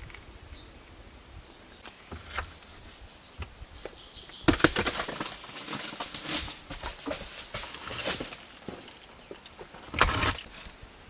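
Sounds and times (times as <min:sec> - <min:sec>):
stone dragged over gravelly ground: 0:04.7 - 0:10.7.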